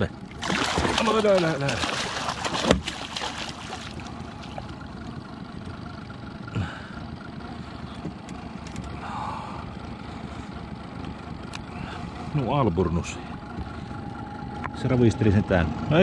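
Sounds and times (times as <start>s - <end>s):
low background rumble: 0.0s - 16.0s
fish thrashing and splashing: 0.2s - 4.9s.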